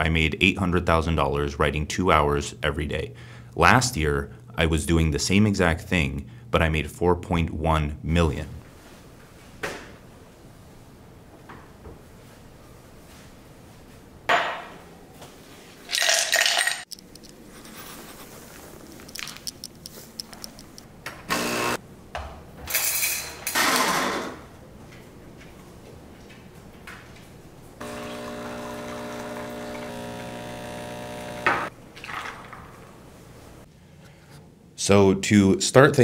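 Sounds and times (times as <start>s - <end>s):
espresso machine pump buzzing: 21.3s - 21.8s, 27.8s - 31.7s
cup set down: 31.5s - 32.6s.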